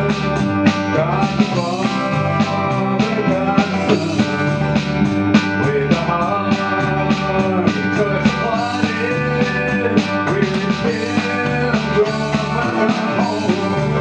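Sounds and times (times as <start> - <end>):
guitars strumming country gospel: 0.0 - 14.0.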